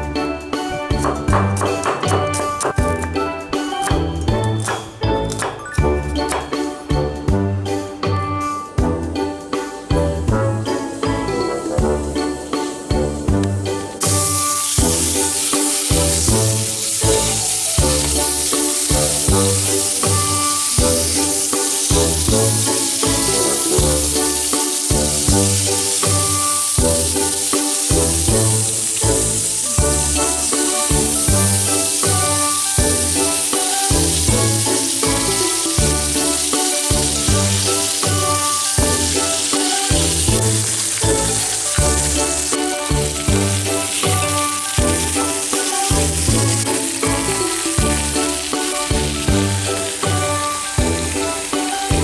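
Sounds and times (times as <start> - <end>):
background music with beat: 0.0 - 52.0
meat sizzling on grill: 10.6 - 52.0.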